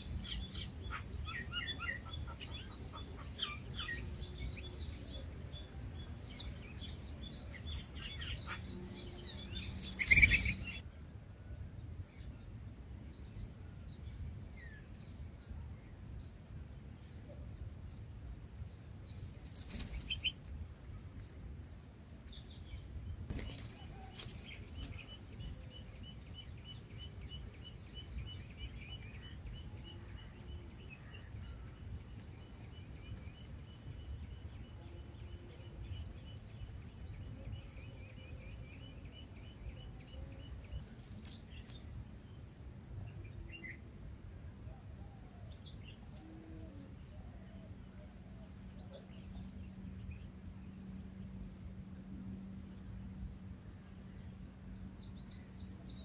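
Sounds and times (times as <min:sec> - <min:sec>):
wings fluttering: 0:09.5 - 0:10.8, 0:19.3 - 0:20.7, 0:23.2 - 0:25.2, 0:40.8 - 0:42.0.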